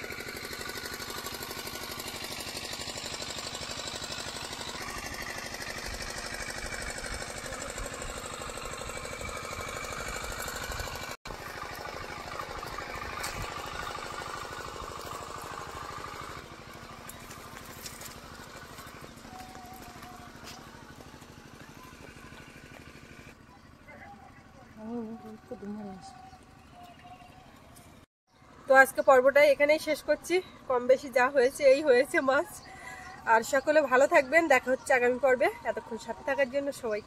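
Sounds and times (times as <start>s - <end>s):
small engine knocking: 0.0s - 23.5s.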